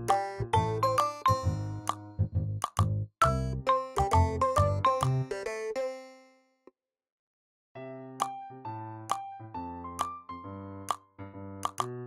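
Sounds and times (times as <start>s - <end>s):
cheerful children's music: 0.0s - 6.4s.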